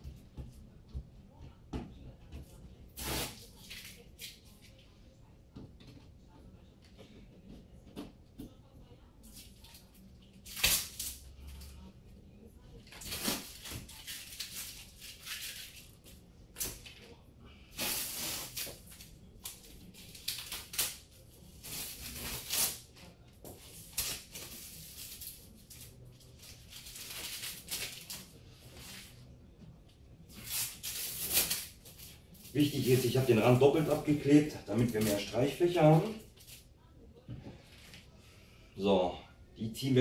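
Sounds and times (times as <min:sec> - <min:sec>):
tape peeling off wall: 0:17.8 - 0:23.0, 0:30.3 - 0:32.7.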